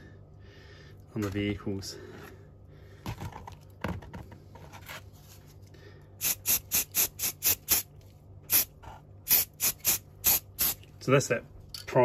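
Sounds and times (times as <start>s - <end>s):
spray can bursts: 6.2s - 7.9s, 8.5s - 10.8s.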